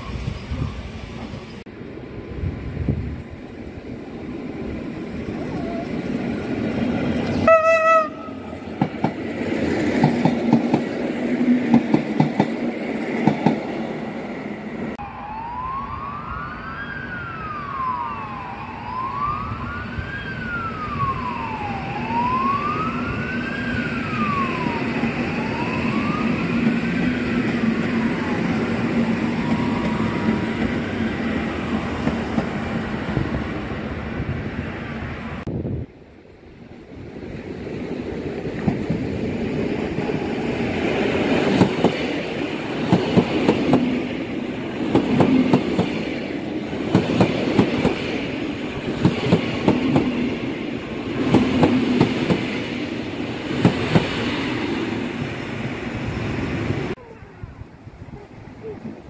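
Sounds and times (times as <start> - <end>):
train running hum: 0.0 - 15.0, 19.5 - 59.0
train horn blast: 7.3 - 8.6
emergency siren wailing: 15.0 - 32.1.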